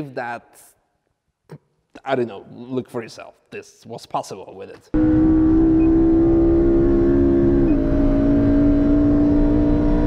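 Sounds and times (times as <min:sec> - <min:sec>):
car engine revving high: 0:05.0 - 0:10.0.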